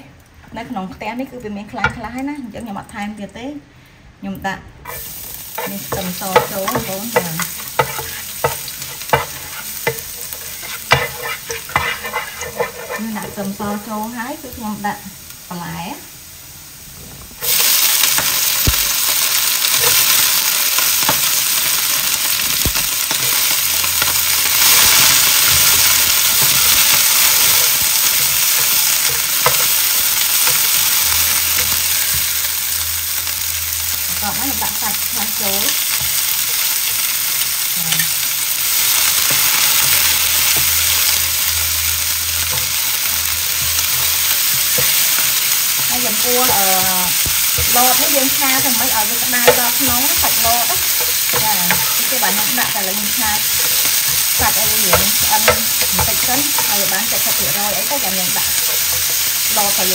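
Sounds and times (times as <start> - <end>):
food sizzling in hot oil: 4.8 - 59.9
spatula tapping and scraping pan: 4.9 - 13.9, 22.6 - 32.3, 42.4 - 59.9.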